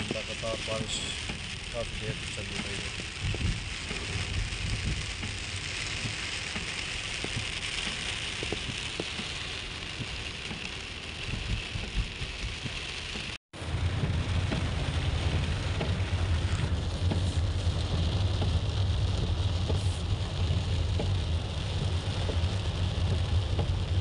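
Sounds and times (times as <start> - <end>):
car rumbling on wet road: 0.0 - 24.0
heavy rain on car windscreen: 0.0 - 24.0.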